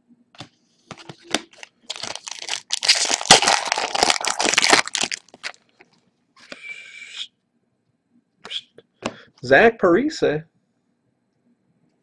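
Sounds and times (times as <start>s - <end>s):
foil wrapper crinkling and tearing: 1.3s - 5.8s.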